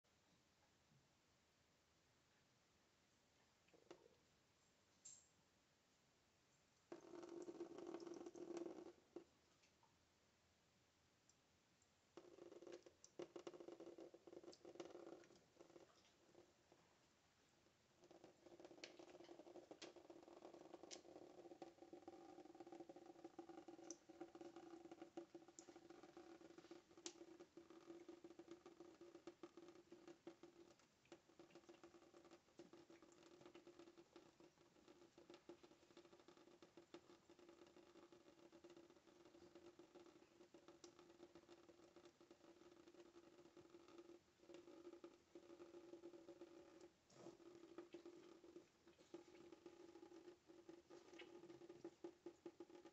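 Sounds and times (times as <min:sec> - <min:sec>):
cat lapping water: 0:06.9 - 0:09.3, 0:12.2 - 0:17.0, 0:17.9 - 0:52.9.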